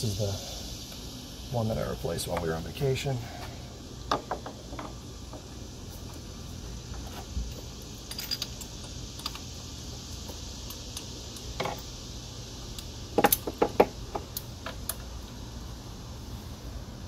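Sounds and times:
metal hand tools clinking: 8.0s - 9.4s.

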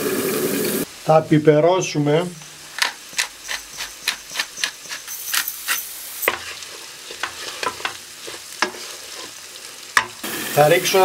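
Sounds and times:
light sizzle: 0.0s - 11.0s
utensil scraping in frying pan: 2.5s - 11.0s.

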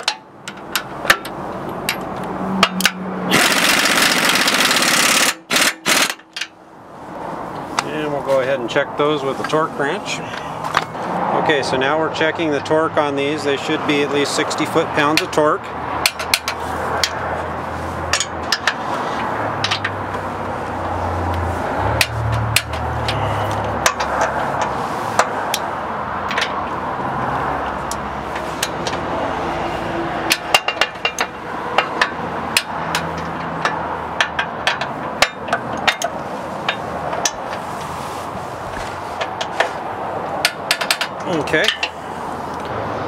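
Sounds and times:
steady background noise: 0.0s - 43.0s.

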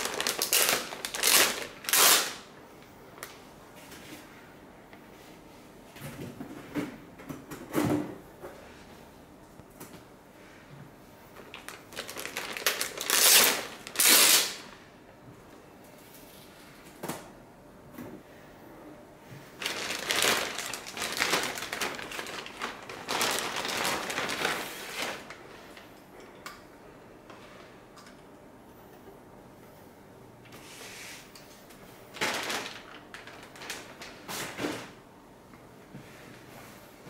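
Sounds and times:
plastic bag crinkling: 0.0s - 2.5s, 11.5s - 14.8s, 19.6s - 25.9s, 32.1s - 34.6s.

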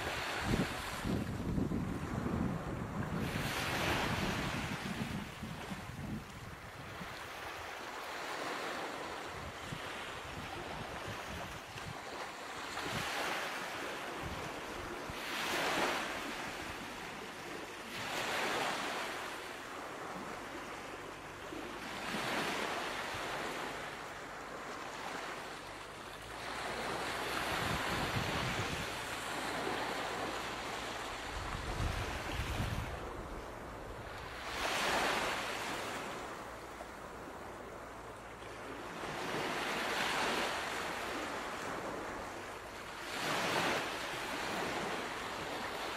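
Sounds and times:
ocean waves breaking: 0.0s - 45.9s.

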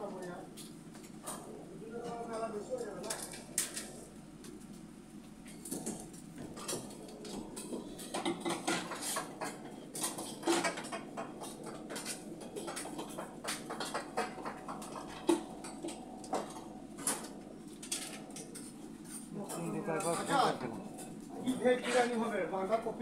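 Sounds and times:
utensils and dishes clinking: 5.6s - 22.3s.

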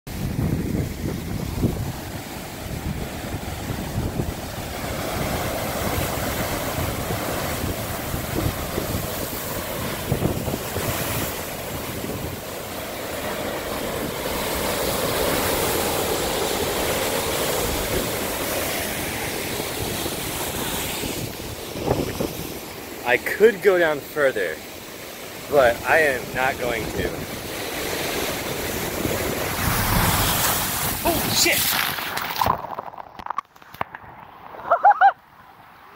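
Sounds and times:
wind buffeting microphone: 0.1s - 14.6s, 19.4s - 22.8s, 26.4s - 32.5s
ocean waves breaking: 0.1s - 35.9s.

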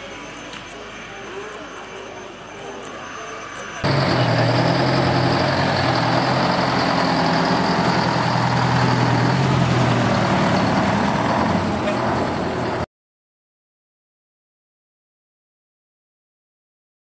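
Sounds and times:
truck diesel engine passing: 3.8s - 12.9s.

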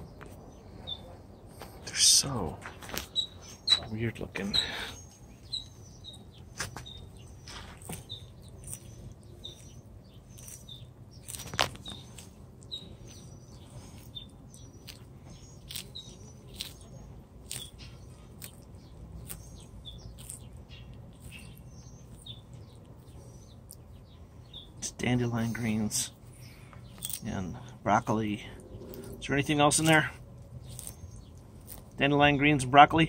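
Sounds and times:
small birds chirping: 0.0s - 33.0s
tortoise crunching leafy greens: 0.0s - 33.0s.

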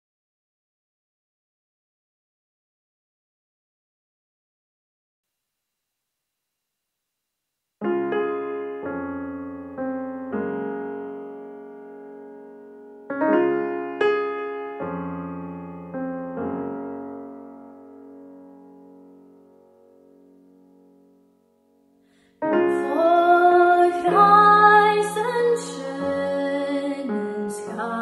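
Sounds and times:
slow piano chords: 7.8s - 28.0s.

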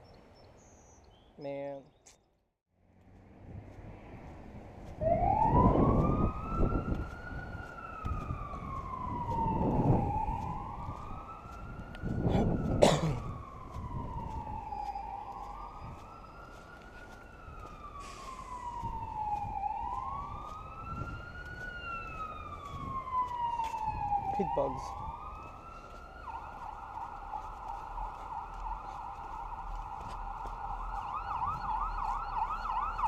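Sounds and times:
emergency siren wailing: 3.3s - 33.0s.

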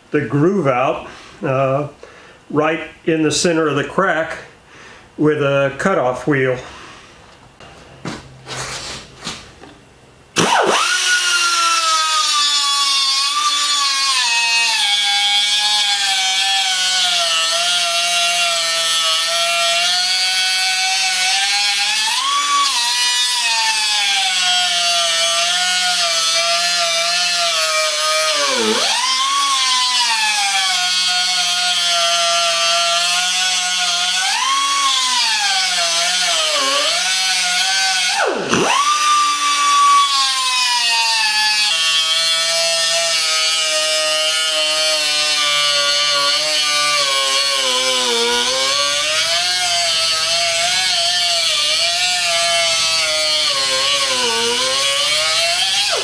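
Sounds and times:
cutoff tool grinding cast iron: 10.4s - 18.4s, 21.1s - 31.9s, 32.5s - 56.0s.

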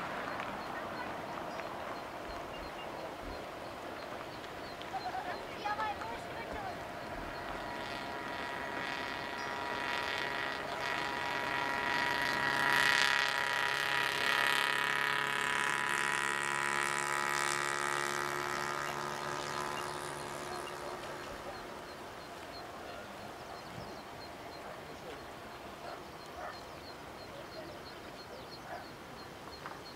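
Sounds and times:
distant jet engines: 0.0s - 29.9s.

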